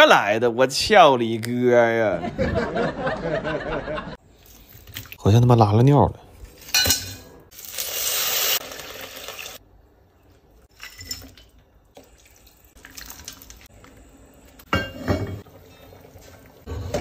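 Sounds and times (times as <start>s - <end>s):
sauce sizzling in hot oil: 7.5s - 9.6s
seasoning pouring: 7.5s - 9.6s, 10.8s - 14.6s.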